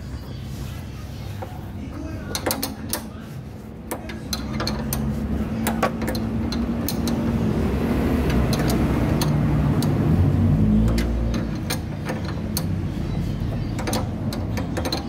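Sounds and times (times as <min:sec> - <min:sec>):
wrench metallic clicks: 0:02.3 - 0:03.1, 0:03.9 - 0:07.4, 0:08.2 - 0:10.0, 0:10.8 - 0:15.0
vehicle engine running: 0:03.4 - 0:15.0.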